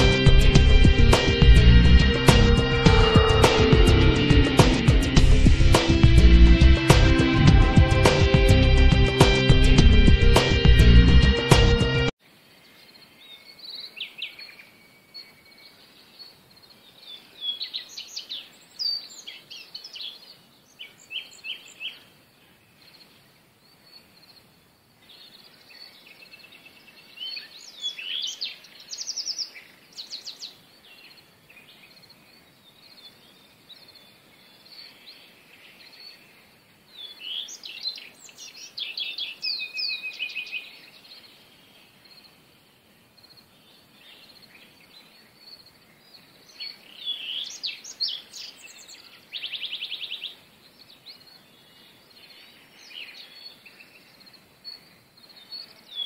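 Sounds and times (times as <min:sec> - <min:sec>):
faint outdoor hiss: 0:12.2 - 0:56.0
small birds chirping: 0:12.5 - 0:56.0.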